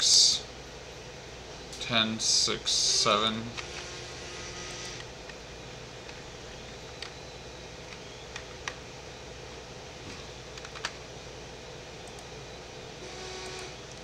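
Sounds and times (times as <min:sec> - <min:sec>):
low background hum: 0:00.0 - 0:14.0.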